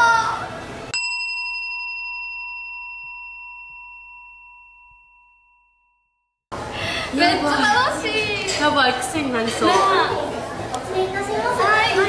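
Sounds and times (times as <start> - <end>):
bell-like chime ringing: 0.9 - 6.3.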